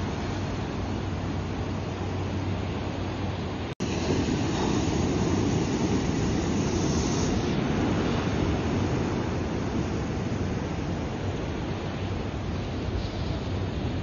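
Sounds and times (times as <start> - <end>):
waves washing over rocks: 3.8 - 14.0.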